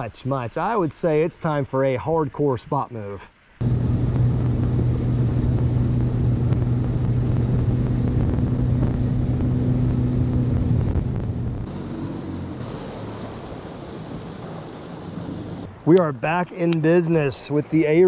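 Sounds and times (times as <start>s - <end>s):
water rushing: 0.0s - 18.0s
wind: 0.0s - 18.0s
outboard engine running: 3.6s - 15.7s.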